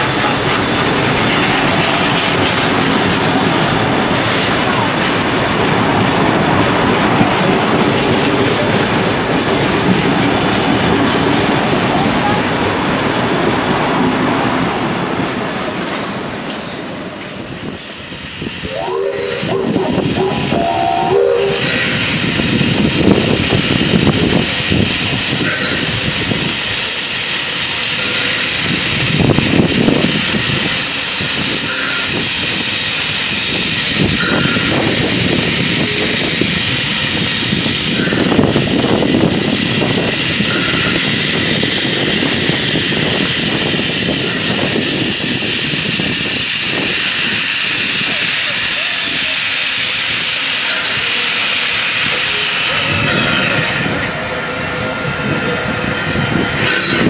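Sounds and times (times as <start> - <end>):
steam locomotive running gear: 0.0 - 57.0
train wheels clattering on rails: 0.0 - 57.0
steam hissing: 16.8 - 57.0.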